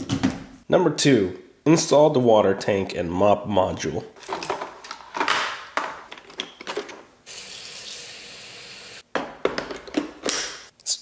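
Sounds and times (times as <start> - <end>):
plastic parts clicking and rustling: 4.2 - 7.1
water running from a tap: 7.3 - 9.0.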